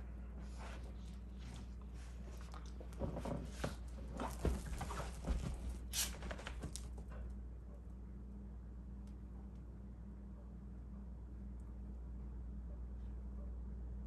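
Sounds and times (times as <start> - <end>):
dogs scuffling on couch cushions: 3.0 - 6.8.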